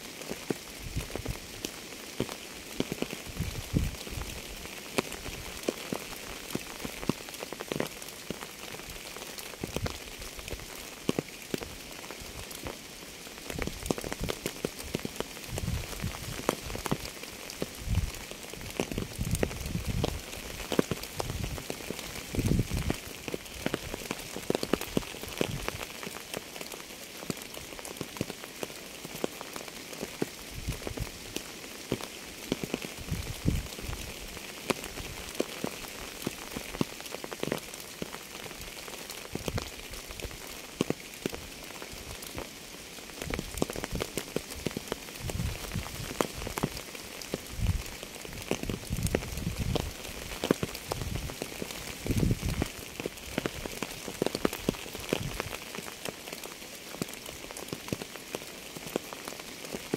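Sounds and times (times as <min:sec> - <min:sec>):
steady rain falling: 0:00.0 - 0:59.9
heavy raindrops thudding: 0:13.4 - 0:26.7, 0:29.0 - 0:56.4.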